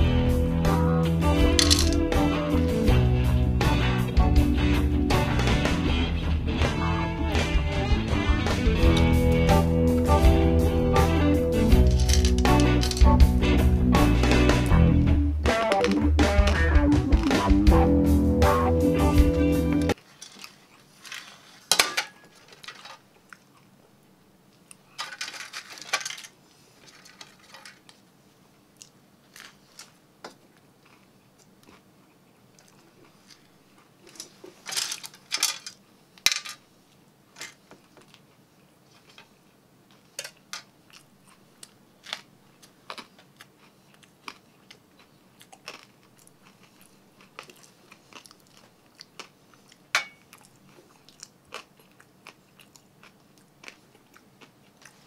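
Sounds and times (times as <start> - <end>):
person crunching and chewing: 28.8 - 34.3, 37.8 - 55.0.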